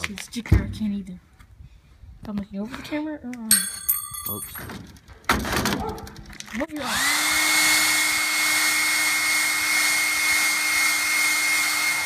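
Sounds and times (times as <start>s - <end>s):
hair dryer running: 6.8s - 12.0s.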